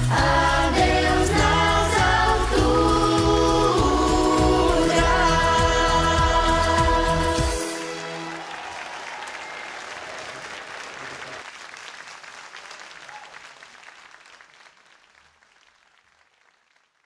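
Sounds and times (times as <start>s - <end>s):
audience applauding: 7.6s - 17.0s.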